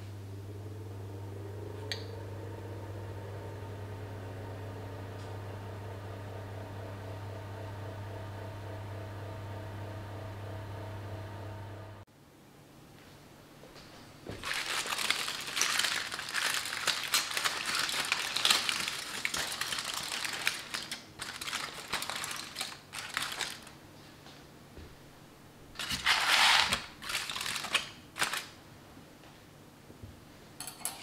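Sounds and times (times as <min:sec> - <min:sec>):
aluminium foil crinkling: 0:14.3 - 0:23.8, 0:25.8 - 0:28.6.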